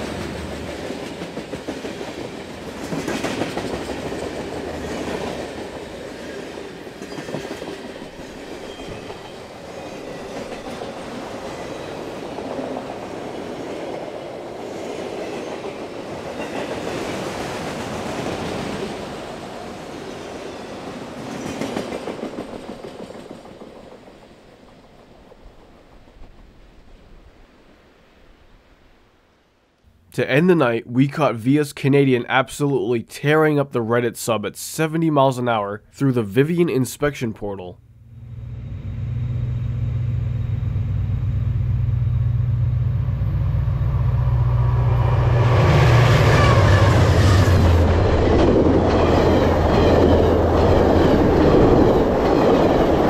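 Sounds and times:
train wheels clattering over rails: 0:00.0 - 0:14.2, 0:21.1 - 0:26.6.

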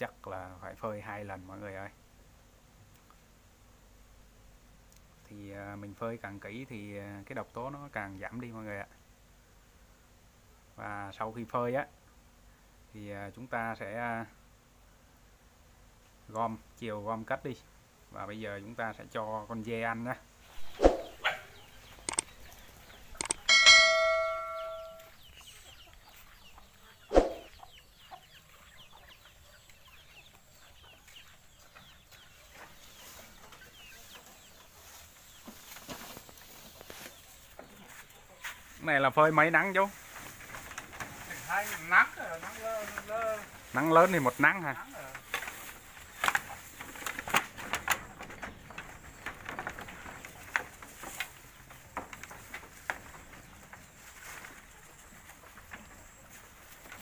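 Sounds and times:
chickens clucking: 0:18.0 - 0:57.0
chicks peeping: 0:18.8 - 0:57.0
bright bell-like ding: 0:23.5 - 0:25.1
goats chewing dry leaves: 0:32.0 - 0:57.0.

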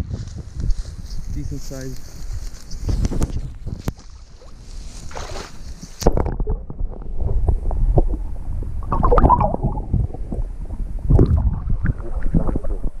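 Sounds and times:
wind: 0:00.0 - 0:13.0
water splashing: 0:03.9 - 0:07.5, 0:08.1 - 0:13.0
underwater sloshing and bubbling: 0:03.9 - 0:13.0.

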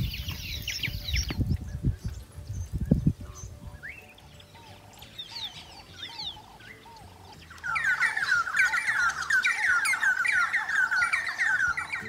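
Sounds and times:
dense chorus of birds chirping: 0:00.0 - 0:12.0
soft bird whistles: 0:02.5 - 0:12.0.

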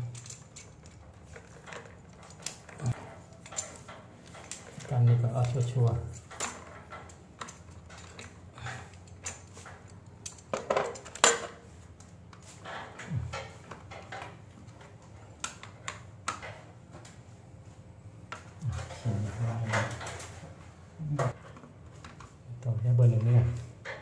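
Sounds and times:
clatter of hand tools and parts: 0:00.0 - 0:17.0, 0:18.3 - 0:20.5.

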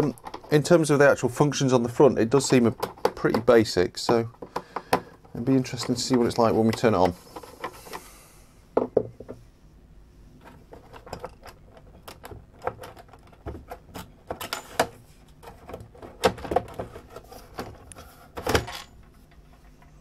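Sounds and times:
plastic case clicks and knocks: 0:02.6 - 0:07.1.

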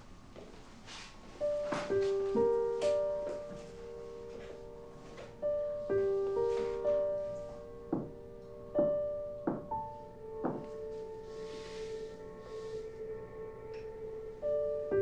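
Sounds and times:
slow piano melody: 0:00.0 - 0:15.0.

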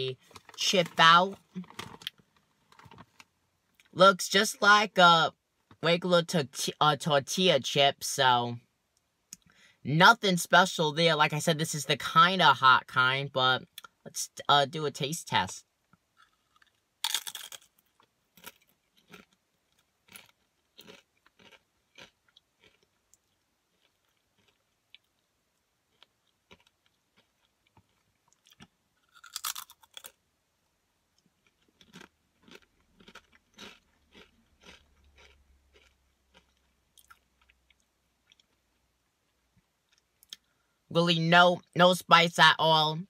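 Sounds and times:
chip crunching bite: 0:16.2 - 0:19.4, 0:20.1 - 0:25.1, 0:25.9 - 0:30.2, 0:31.4 - 0:37.6
crisp chewing crunches: 0:16.2 - 0:25.3, 0:25.9 - 0:30.2, 0:31.2 - 0:38.8.

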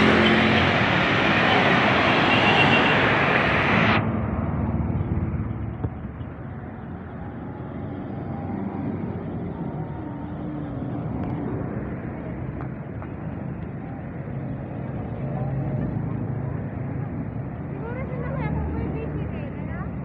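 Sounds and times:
motorcycles passing: 0:00.0 - 0:14.0
cars passing on road: 0:00.0 - 0:20.0.

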